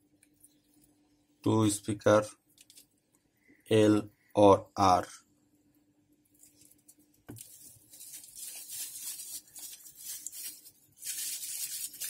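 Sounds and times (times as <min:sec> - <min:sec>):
bubble wrap crinkling: 0:06.3 - 0:12.0.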